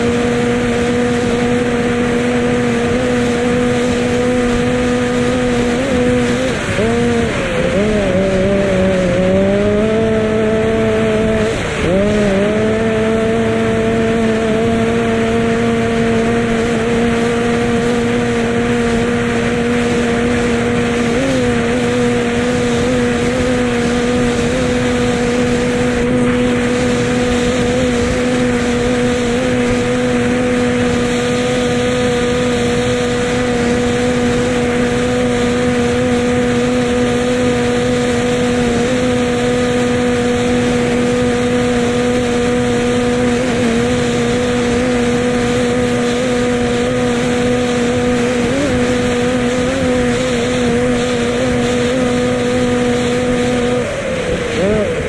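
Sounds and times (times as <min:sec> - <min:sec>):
powerboat engine running: 0:00.0 - 0:55.0.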